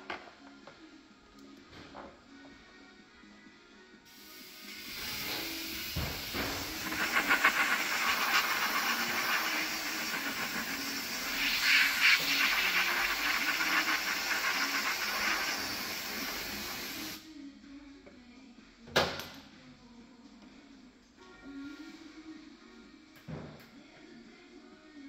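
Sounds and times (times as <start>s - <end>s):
pneumatic tool hissing: 4.1s - 17.2s.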